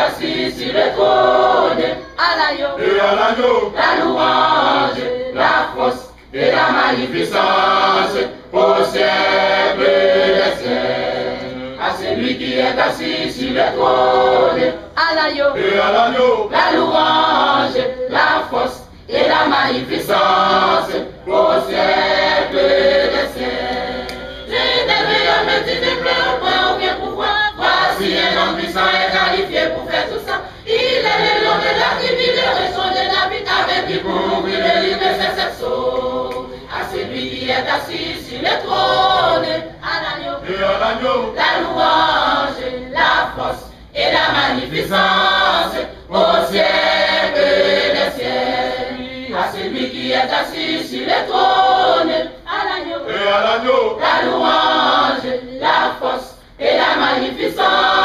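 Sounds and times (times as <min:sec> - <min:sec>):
choir singing in harmony: 0:00.0 - 0:58.0
singers breathing: 0:30.4 - 0:30.7.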